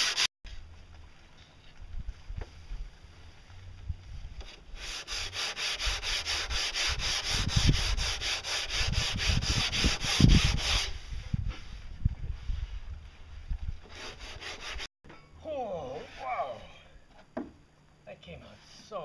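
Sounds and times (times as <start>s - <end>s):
sanding block scratching wood: 0.0s - 0.3s, 4.8s - 11.0s, 13.9s - 14.9s.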